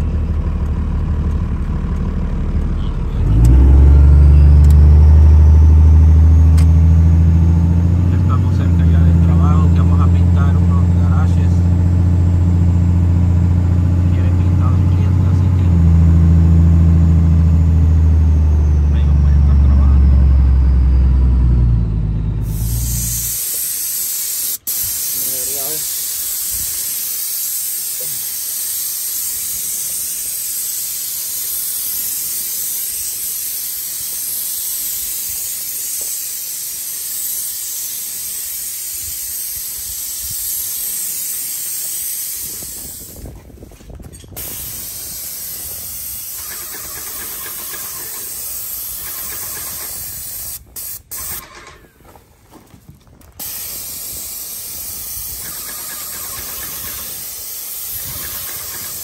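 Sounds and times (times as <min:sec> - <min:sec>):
paint sprayer hissing: 0:22.4 - 0:52.1, 0:53.3 - 0:59.0.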